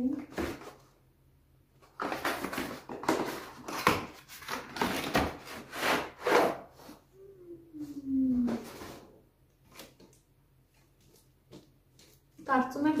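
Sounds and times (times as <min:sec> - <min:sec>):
cardboard scraping on wooden dish: 0:04.8 - 0:06.6.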